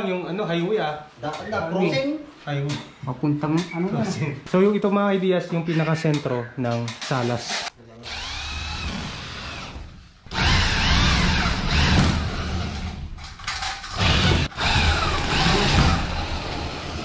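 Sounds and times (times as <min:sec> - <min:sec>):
power drill whining: 0:08.0 - 0:13.0, 0:13.8 - 0:17.0.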